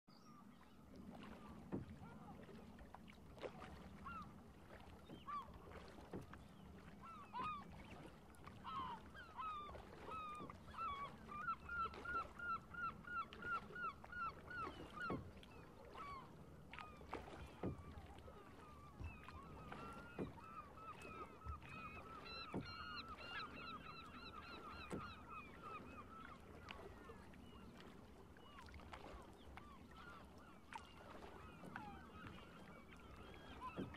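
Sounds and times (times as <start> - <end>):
birds calling: 16.9 - 27.7.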